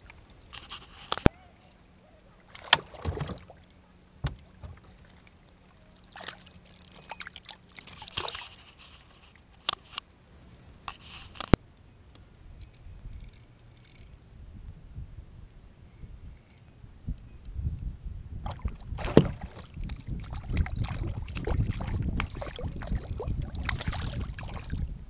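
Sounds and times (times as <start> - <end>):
water splashing against kayak: 2.4 - 10.0, 18.4 - 25.0.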